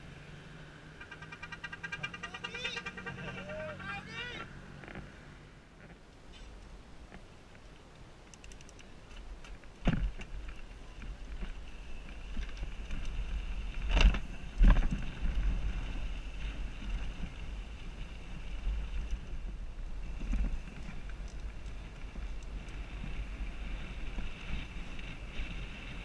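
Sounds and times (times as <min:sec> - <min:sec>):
wind rumbling on microphone: 0:04.2 - 0:26.0
bike tyres rolling over dirt: 0:05.8 - 0:26.0.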